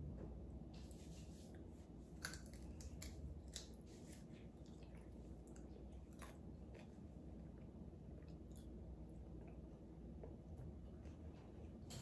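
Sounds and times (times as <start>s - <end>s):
crunchy chewing: 1.5s - 10.4s.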